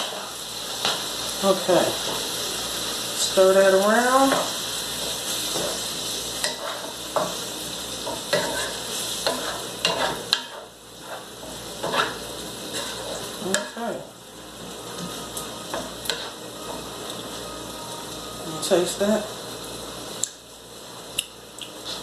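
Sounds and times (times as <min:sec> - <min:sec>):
food sizzling: 0:00.0 - 0:22.0
wooden spoon scraping a pan: 0:04.0 - 0:07.4, 0:08.0 - 0:13.8, 0:14.9 - 0:16.8.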